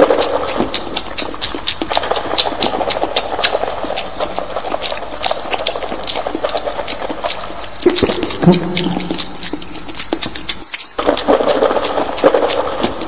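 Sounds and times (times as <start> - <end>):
people chewing and smacking: 0.0 - 13.0
brief low hum: 8.0 - 9.8.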